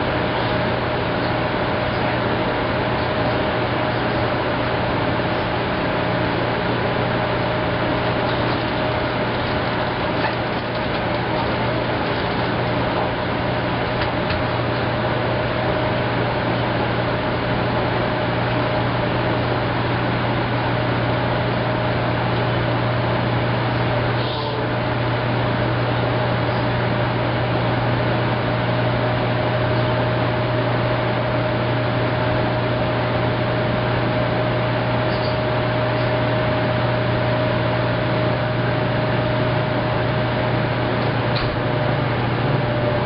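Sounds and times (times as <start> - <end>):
constant machine whine: 0.0 - 43.0
washing machine hum: 0.0 - 43.0.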